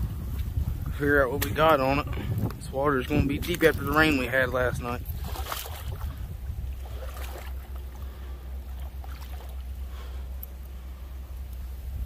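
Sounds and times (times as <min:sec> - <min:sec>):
low wind rumble on microphone: 0:00.0 - 0:12.0
water sloshing and splashing: 0:02.9 - 0:10.2.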